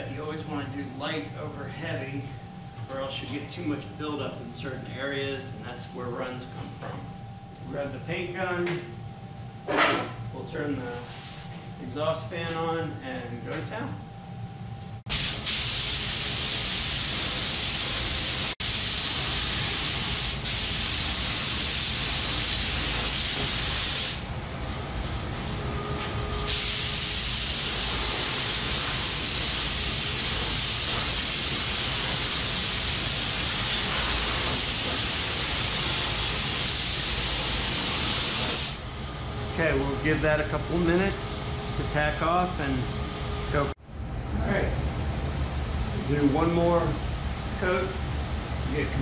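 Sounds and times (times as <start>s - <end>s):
paint spray gun hissing: 15.1s - 24.3s, 26.5s - 38.8s.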